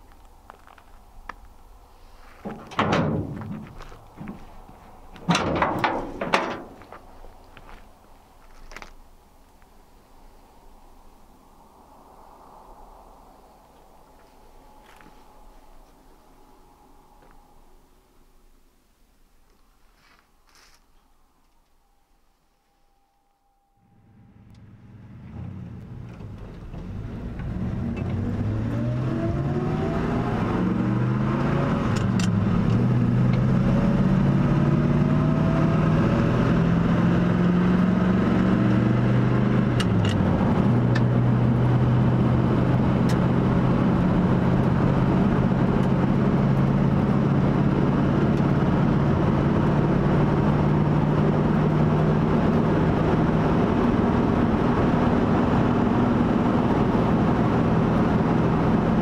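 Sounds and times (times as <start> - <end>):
road noise: 0.0 - 22.6, 23.7 - 59.0
truck engine accelerating: 2.4 - 7.0, 23.8 - 59.0.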